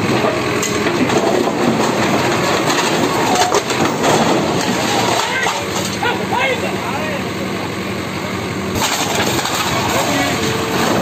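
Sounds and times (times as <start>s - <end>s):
excavator engine under load: 0.0s - 11.0s
concrete blocks crunching: 0.1s - 6.4s, 8.7s - 11.0s.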